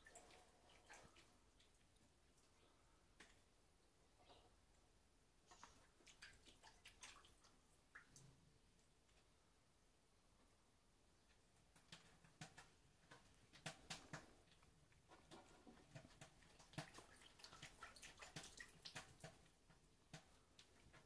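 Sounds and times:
cat lapping water: 0:00.0 - 0:02.8, 0:05.5 - 0:08.4, 0:11.8 - 0:21.0.

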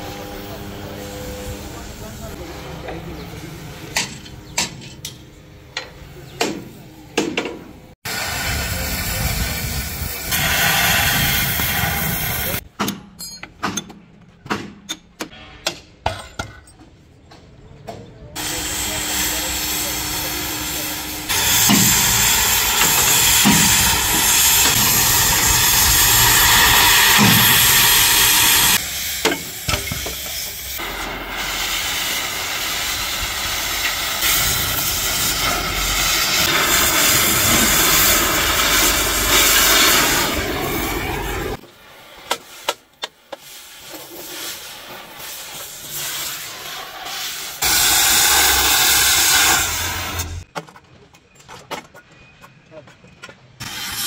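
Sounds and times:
gas cutting torch hissing: 0:08.0 - 0:12.6, 0:18.4 - 0:50.4, 0:53.6 - 0:54.0.

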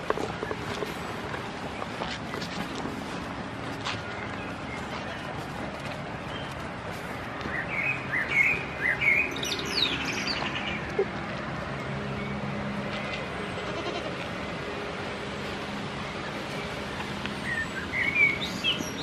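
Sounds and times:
outdoor background noise: 0:00.0 - 0:19.0
bird chirping: 0:07.5 - 0:11.0, 0:17.4 - 0:19.0.

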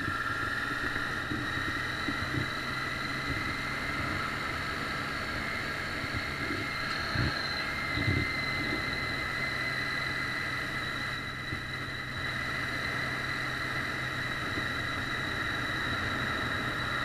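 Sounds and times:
motorcycle engine cruising: 0:00.0 - 0:17.0
wind noise on microphone: 0:06.0 - 0:09.2.

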